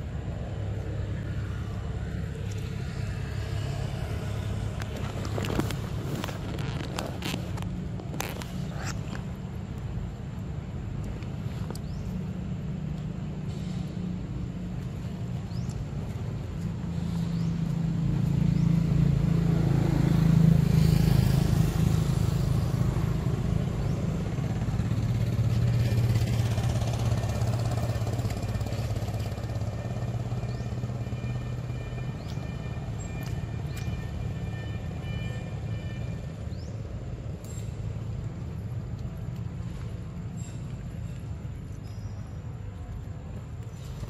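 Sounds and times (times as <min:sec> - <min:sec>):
vehicle engine hum passing: 0:00.0 - 0:44.0.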